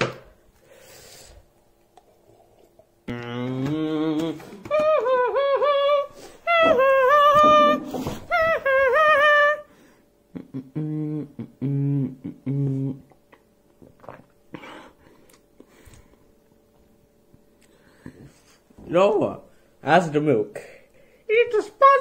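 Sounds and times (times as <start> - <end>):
person humming: 3.1 - 9.7, 10.3 - 13.2.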